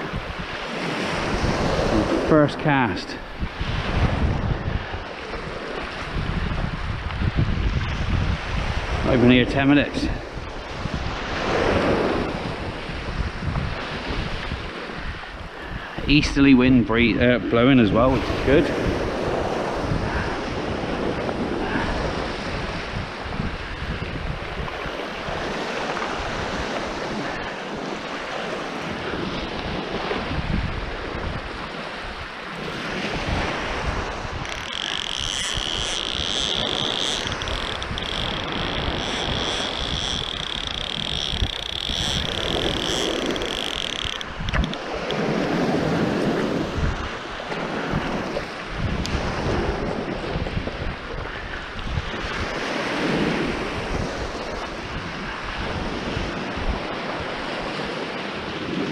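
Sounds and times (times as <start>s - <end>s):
wind buffeting microphone: 0.0s - 58.9s
waves breaking on shingle: 36.5s - 40.4s.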